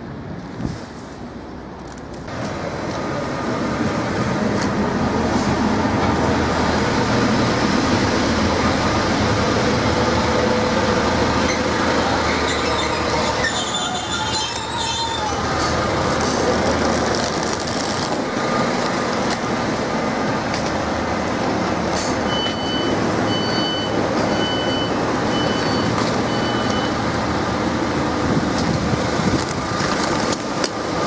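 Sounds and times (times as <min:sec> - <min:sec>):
train engine and wheel noise: 0:00.0 - 0:31.0
high brake squeal: 0:11.4 - 0:15.8, 0:22.0 - 0:27.0.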